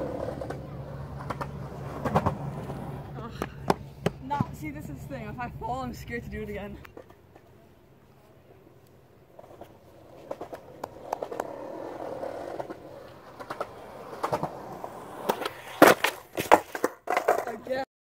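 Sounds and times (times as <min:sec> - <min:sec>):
skateboard clattering in a fall: 0:00.0 - 0:04.5, 0:09.4 - 0:17.8
skateboard clicks: 0:00.0 - 0:04.5, 0:09.4 - 0:17.6
skateboard tail popping: 0:00.0 - 0:04.6, 0:09.4 - 0:17.6
skateboard wheels rolling on concrete: 0:00.0 - 0:17.9.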